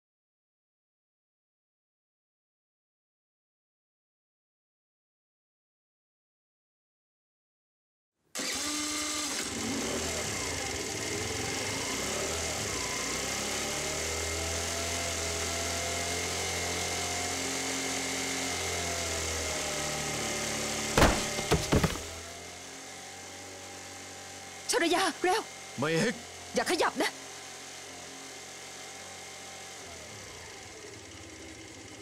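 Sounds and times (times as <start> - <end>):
motorbike engine running: 20.9 - 22.4
sharp knocks: 21.0 - 22.2.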